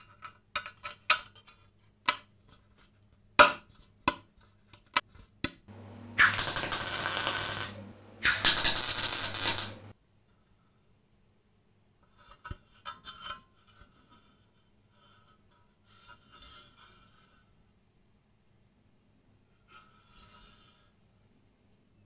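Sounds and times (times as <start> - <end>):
low hum: 5.7 - 9.9
welding arc crackling and hissing: 6.0 - 9.9.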